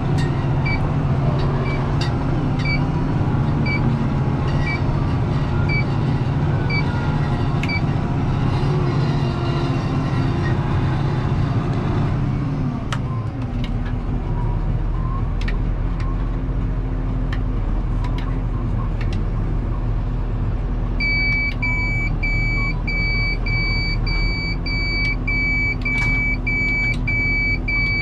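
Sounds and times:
tractor engine running: 0.0 - 28.0
electronic warning beep: 5.7 - 6.0, 21.0 - 28.0.

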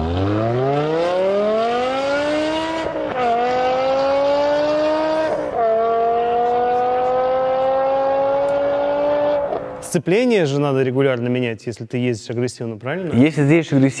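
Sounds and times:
car engine accelerating hard: 0.0 - 9.8.

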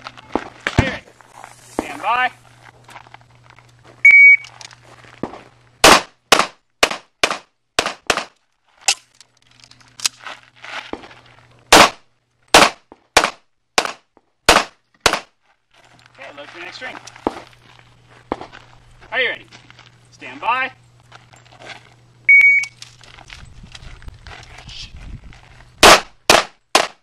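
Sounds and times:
shot timer beep: 4.0 - 4.5, 22.3 - 22.8
pistol shots: 5.8 - 8.4, 11.7 - 15.3, 25.8 - 27.0.

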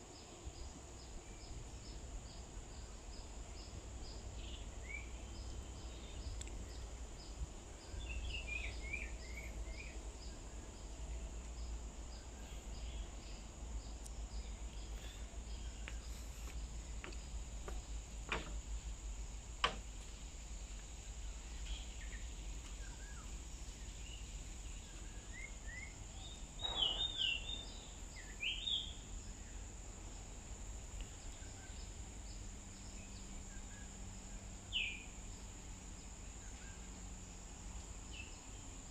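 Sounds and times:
high insect drone: 0.0 - 38.9
bird chirps: 24.0 - 29.1.

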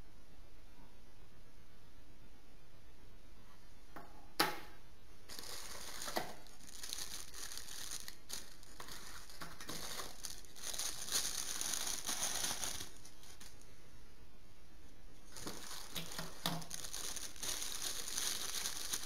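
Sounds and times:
plastic bags crinkling: 5.3 - 13.6, 15.2 - 19.0.

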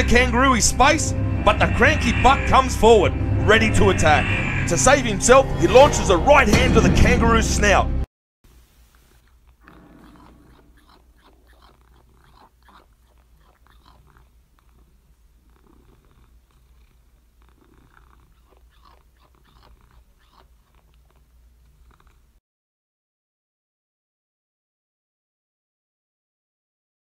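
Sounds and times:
faint clicks and rustles: 8.5 - 22.3
cat purring: 8.8 - 22.4.

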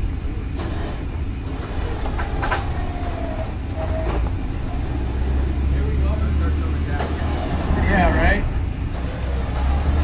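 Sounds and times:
off-road vehicle engine rumble: 0.0 - 10.0
squeaks and creaks: 1.5 - 5.6.

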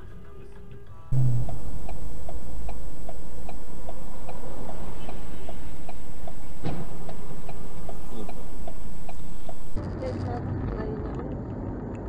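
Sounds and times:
engine and road rumble: 1.1 - 12.0.

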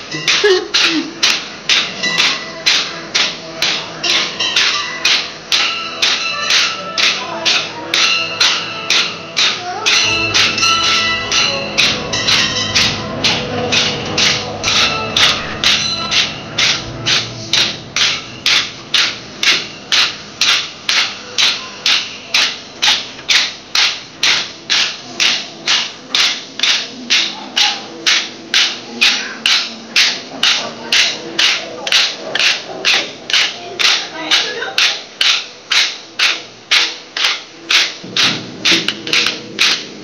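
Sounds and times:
wooden sticks clacking together: 0.0 - 40.0.

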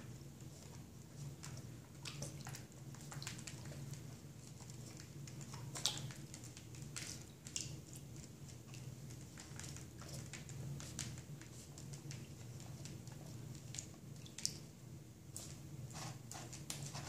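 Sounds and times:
faint low hum: 0.0 - 17.0
water splashing and dripping: 1.3 - 14.8.

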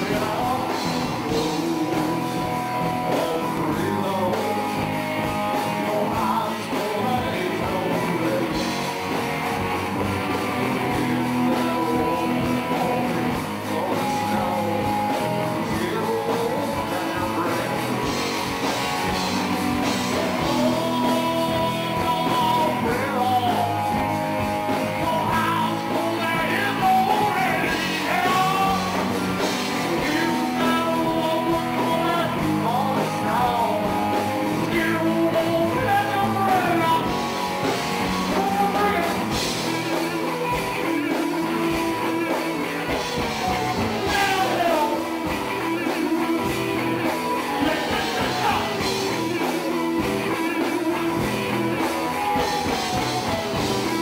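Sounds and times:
man singing into a microphone: 0.0 - 8.8, 10.8 - 18.2, 19.9 - 24.1, 24.7 - 37.2, 38.2 - 39.5, 44.0 - 45.2, 47.5 - 49.0
drums: 0.0 - 54.0
electric guitar: 0.0 - 54.0.

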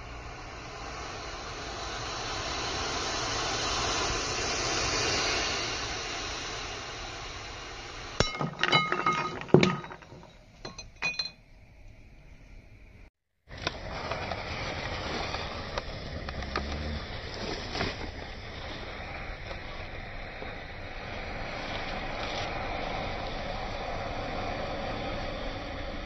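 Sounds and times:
glass bottle breaking: 8.2 - 11.4
burning matches hissing: 13.5 - 24.3.

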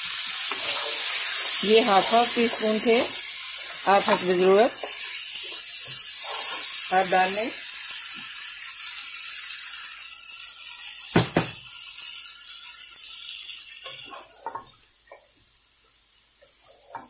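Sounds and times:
meat and onions sizzling in pan: 0.0 - 17.0
spoon scraping pan: 0.4 - 7.3, 13.7 - 15.3.

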